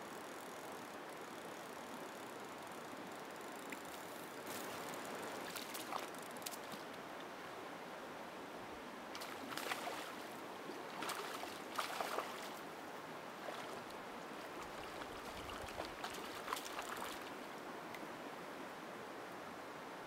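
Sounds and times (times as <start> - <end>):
river water flowing: 0.0 - 20.0
fish splashing: 11.0 - 12.5.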